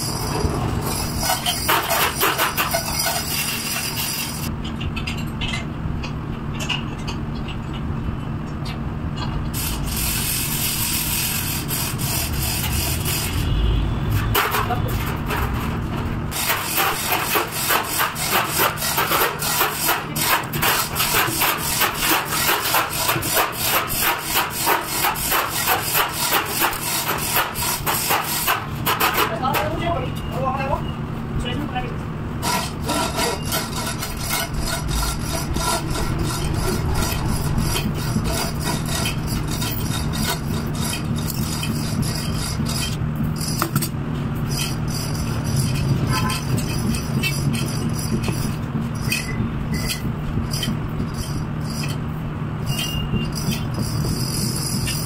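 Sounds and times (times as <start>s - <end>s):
scraping and rubbing on rubber: 9.6s - 30.0s, 32.4s - 43.8s, 44.5s - 52.0s.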